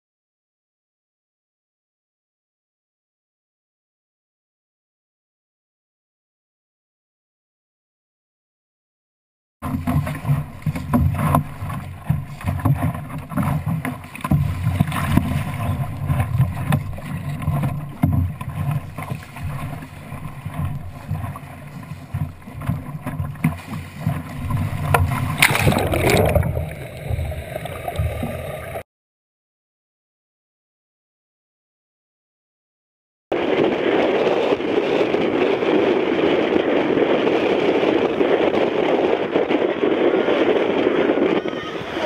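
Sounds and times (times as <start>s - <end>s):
water splashing against hull: 9.6s - 28.8s, 33.4s - 42.0s
wind buffeting microphone: 9.6s - 28.8s, 33.3s - 42.0s
loud rush of water: 24.4s - 28.8s.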